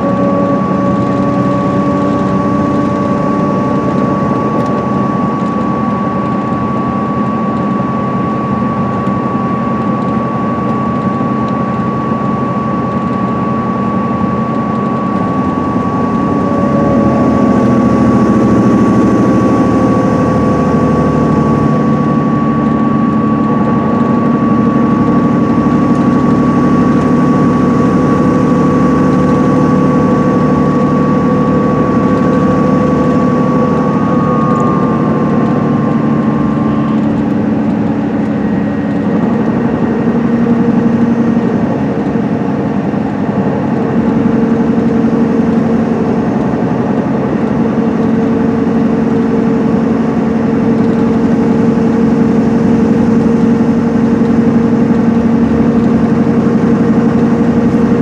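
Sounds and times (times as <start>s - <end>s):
diesel engine drone: 0.0s - 58.0s
high whine: 0.0s - 58.0s
road noise: 14.6s - 58.0s.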